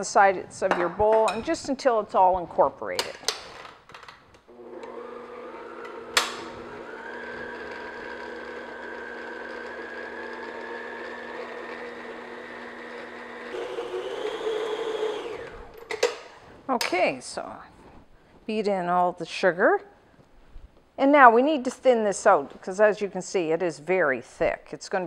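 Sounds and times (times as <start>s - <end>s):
stand mixer motor whine: 4.5s - 15.8s.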